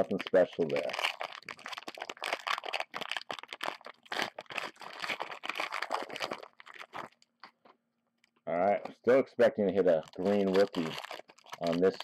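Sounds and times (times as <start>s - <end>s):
plastic wrapper crinkling and tearing: 0.0s - 7.6s, 9.6s - 12.0s.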